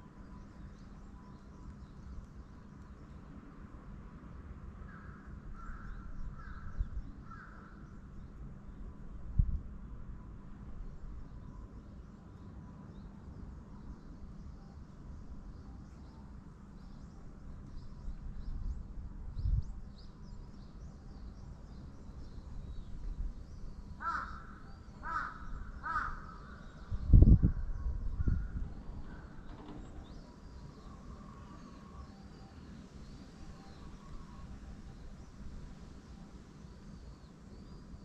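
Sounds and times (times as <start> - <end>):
crow cawing: 24.0 - 26.6.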